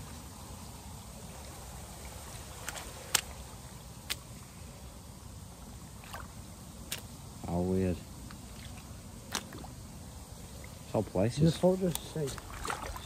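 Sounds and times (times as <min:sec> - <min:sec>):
low background noise: 0:00.0 - 0:13.0
boots walking through wet mud: 0:12.3 - 0:13.0.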